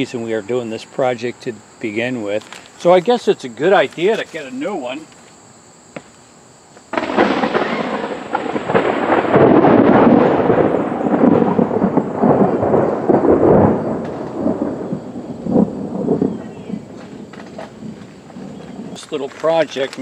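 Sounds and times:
thunder clap and rumble: 0:06.9 - 0:19.9.

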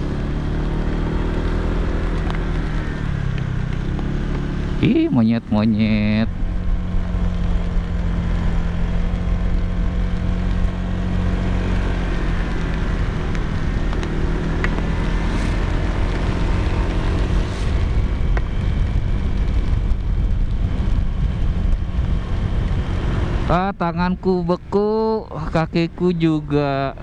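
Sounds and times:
motorcycle engine hum: 0:00.0 - 0:27.0
wind noise on microphone: 0:16.9 - 0:23.7.

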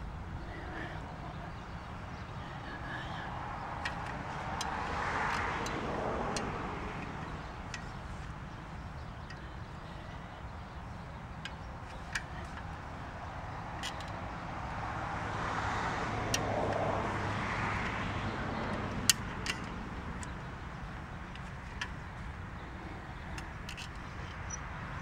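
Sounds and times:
vehicle passing: 0:00.0 - 0:25.0
winch ratchet clicks: 0:03.8 - 0:10.1, 0:13.7 - 0:14.5, 0:18.6 - 0:24.6.

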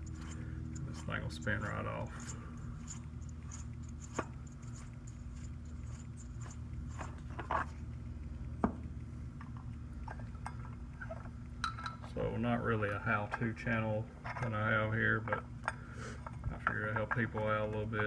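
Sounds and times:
metallic clicks and clinks: 0:00.0 - 0:07.8
low hum: 0:00.0 - 0:18.0.

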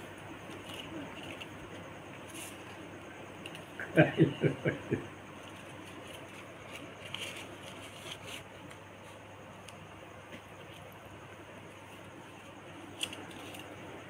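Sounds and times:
paper banknotes rustling: 0:05.4 - 0:09.2, 0:11.9 - 0:14.0.

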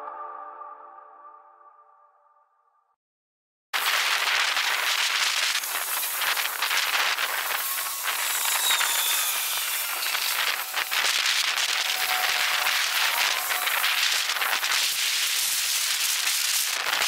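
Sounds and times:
sped-up wind hiss: 0:03.8 - 0:17.0.

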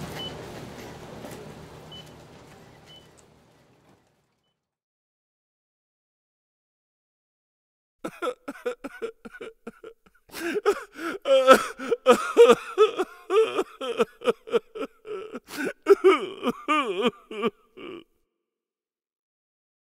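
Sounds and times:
person's high-pitched choppy cries: 0:08.1 - 0:18.0.

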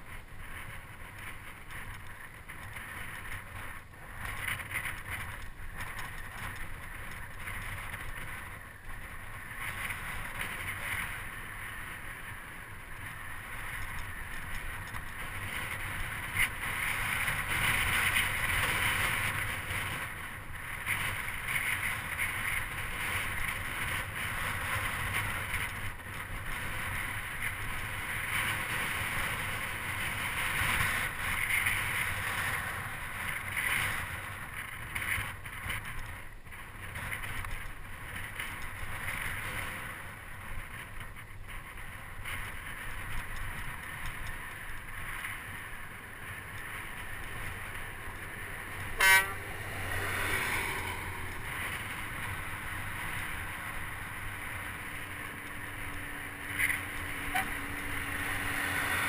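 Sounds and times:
wind and road noise: 0:00.0 - 0:59.0
short sharp horn toot: 0:48.9 - 0:49.6, 0:57.2 - 0:57.6.

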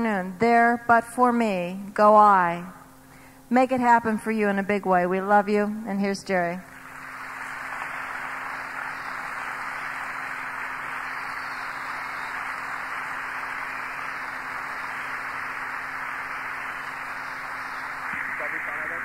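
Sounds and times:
faint steady hum: 0:00.0 - 0:19.0
audience applauding: 0:06.7 - 0:19.0.

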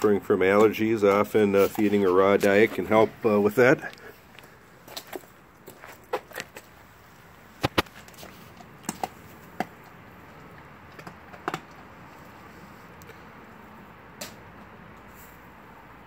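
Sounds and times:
dog teeth cracking bone: 0:10.5 - 0:11.9.

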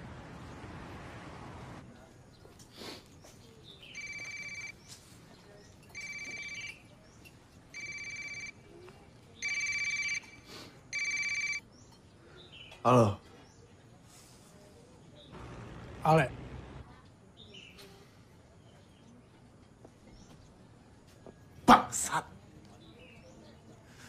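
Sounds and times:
phone ringing electronically: 0:03.9 - 0:04.8, 0:05.9 - 0:06.9, 0:07.7 - 0:08.7, 0:09.4 - 0:11.7.

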